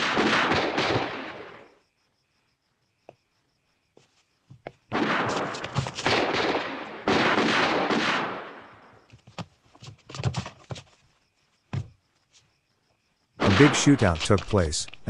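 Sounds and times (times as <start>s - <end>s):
gunshots: 0.0s - 1.7s, 4.9s - 8.9s, 13.4s - 14.6s
rapid gunfire bursts: 0.0s - 1.7s, 4.9s - 8.6s, 13.4s - 14.2s.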